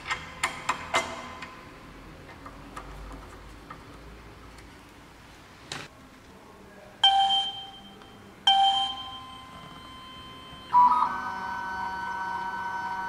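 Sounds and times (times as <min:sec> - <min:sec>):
electronic bell-like chimes: 0:08.5 - 0:10.8.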